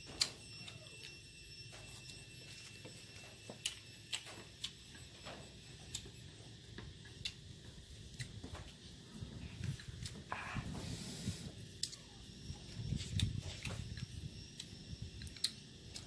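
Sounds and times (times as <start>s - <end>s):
faint high-pitched tone: 0.0s - 5.4s
chewing clicks: 3.6s - 5.1s, 13.2s - 16.0s.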